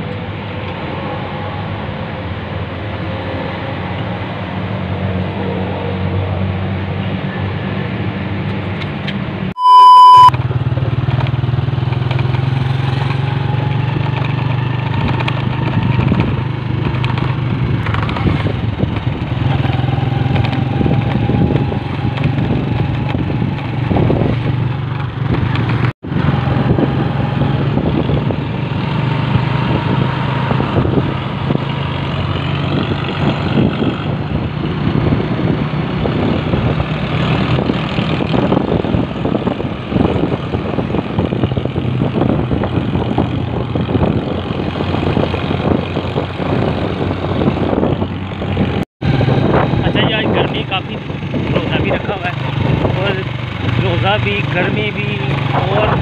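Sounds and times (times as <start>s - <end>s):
loud beep: 9.6s - 10.4s
motorcycle engine running: 10.4s - 56.0s
wind buffeting microphone: 13.3s - 56.0s.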